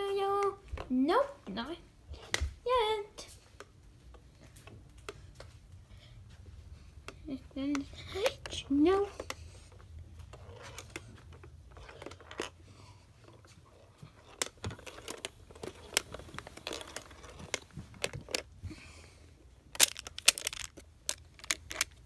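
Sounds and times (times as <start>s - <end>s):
plastic tiles clicking and clacking: 19.7s - 22.0s.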